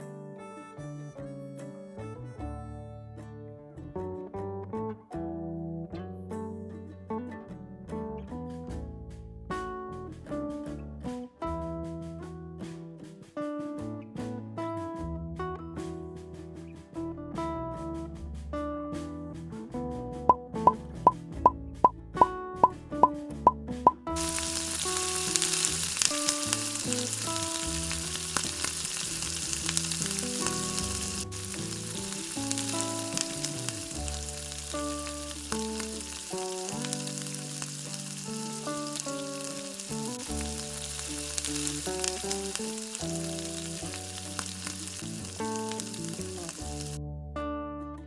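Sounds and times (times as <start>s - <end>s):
plucked-string background music: 0.0s - 48.0s
oil sizzling and bubbling: 23.9s - 47.0s.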